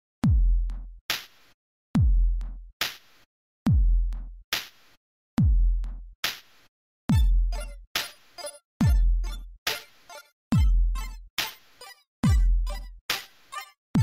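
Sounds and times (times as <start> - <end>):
electronic music with drum-machine beat: 7.1 - 14.0.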